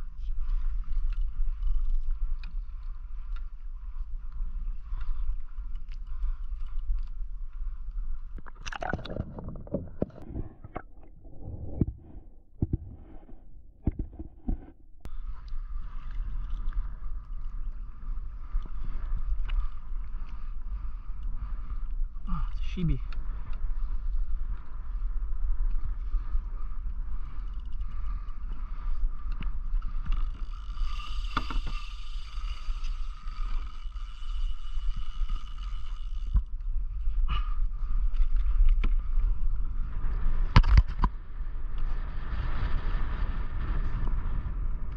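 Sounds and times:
water and wind against kayak: 0.0 - 44.9
splashing into water: 8.4 - 10.0
sharp underwater clicks and knocks: 8.4 - 14.8, 40.5 - 41.2
low underwater rumble: 8.4 - 15.2.

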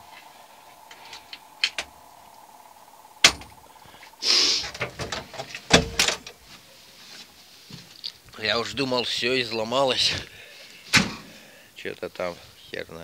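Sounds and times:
faint steady whine: 0.0 - 13.0
scraping rustle: 4.2 - 9.1.

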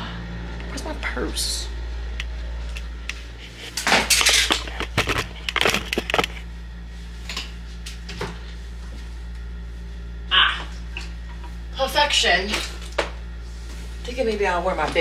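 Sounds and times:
steady low hum: 0.0 - 15.0
rustling and clattering objects: 2.7 - 6.5.

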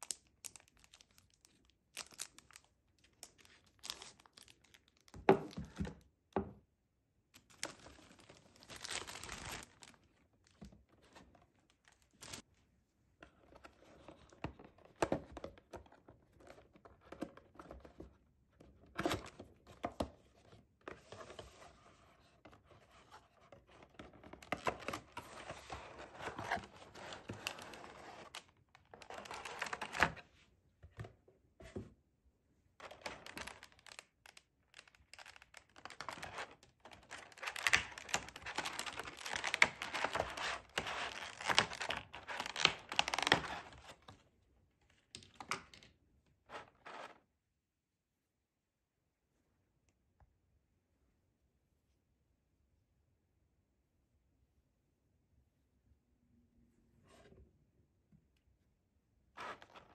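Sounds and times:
packaging crinkling and tearing: 0.0 - 5.1, 7.4 - 10.1, 11.8 - 12.4, 26.0 - 30.2, 32.8 - 44.0.

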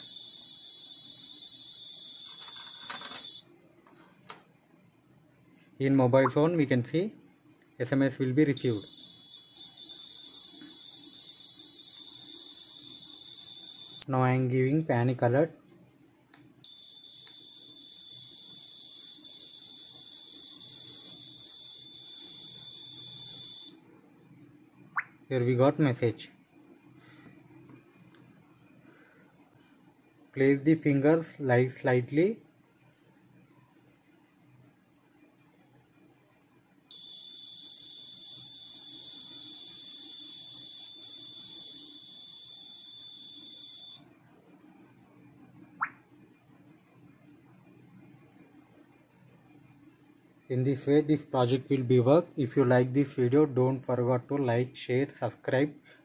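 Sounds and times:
alert buzzer high-pitched tone: 0.0 - 3.4
piezo buzzer high-pitched tone: 0.0 - 3.4, 8.6 - 14.0, 16.7 - 23.8, 36.9 - 44.1.

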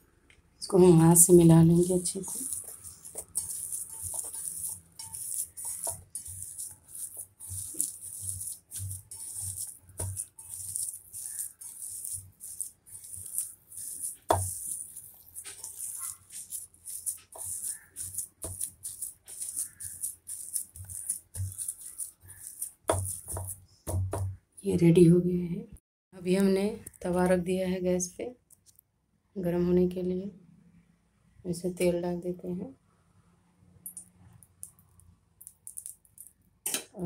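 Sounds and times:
hand squelching potato mash: 1.0 - 24.4.

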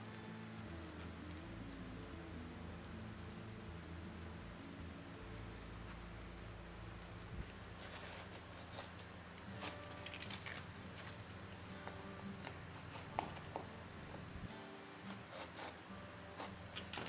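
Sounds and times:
steady low hum: 0.0 - 17.0
sandpaper rustling and scraping: 7.8 - 9.9, 15.0 - 15.8.

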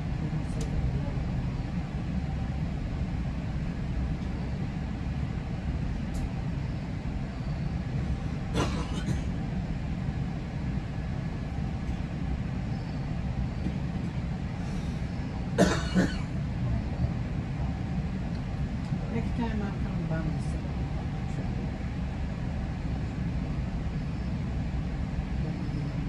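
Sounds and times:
train rumbling on track: 0.0 - 26.0
train clatter: 8.5 - 9.3, 13.6 - 14.2.

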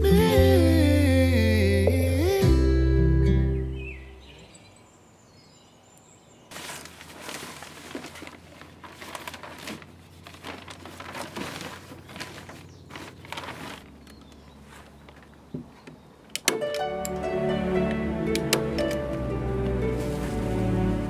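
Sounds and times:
plastic sheeting rustling: 6.5 - 15.4, 19.5 - 21.0.

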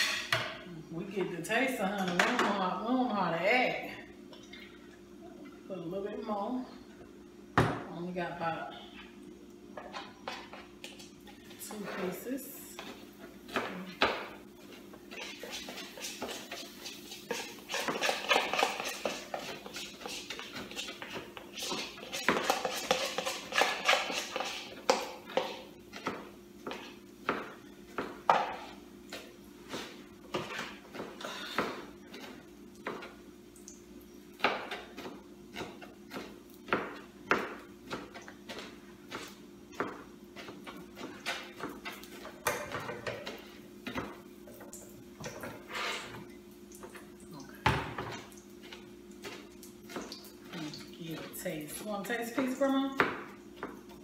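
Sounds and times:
utensils clinking on pots: 0.0 - 0.6.

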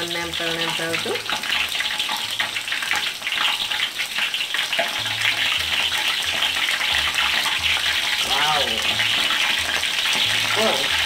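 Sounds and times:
chicken frying in hot oil: 0.0 - 11.0.

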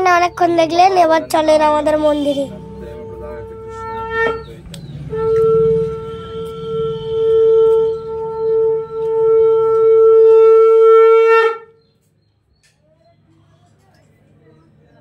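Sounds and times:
conch shell blown: 2.5 - 11.9.

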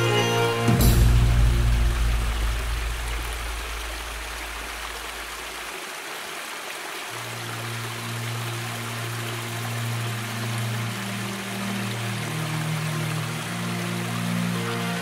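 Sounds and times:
small waterfall rushing: 0.0 - 15.0
soft background music: 7.1 - 15.0.

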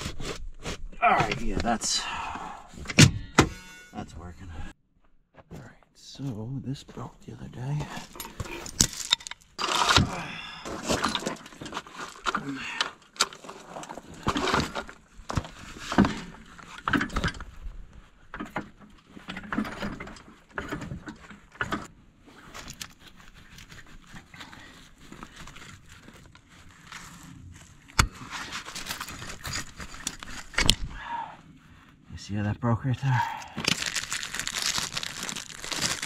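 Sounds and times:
metal tools clinking and scraping: 3.2 - 4.2, 7.8 - 10.1, 28.2 - 30.8.

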